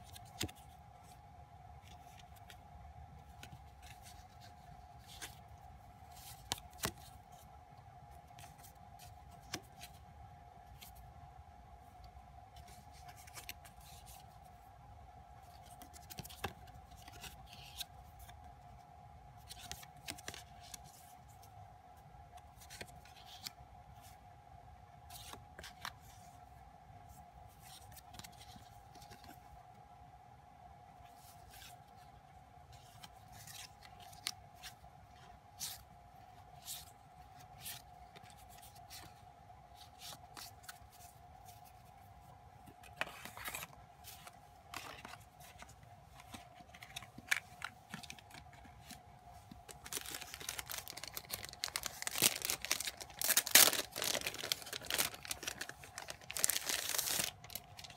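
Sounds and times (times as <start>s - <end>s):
cards being shuffled: 0.0s - 1.2s, 3.2s - 5.5s, 6.1s - 7.4s, 12.6s - 14.3s, 15.5s - 18.4s, 32.7s - 34.8s, 42.6s - 57.9s
faint hum: 0.0s - 57.9s.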